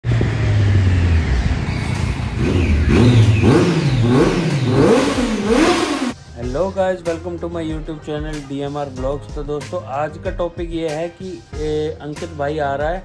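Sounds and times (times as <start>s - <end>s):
motorcycle engine revving: 0.0s - 6.2s.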